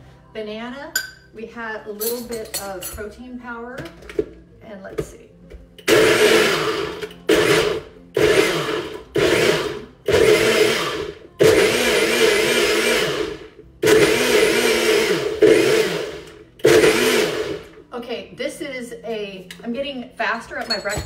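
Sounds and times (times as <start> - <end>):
blender crushing ice: 5.8 - 17.7.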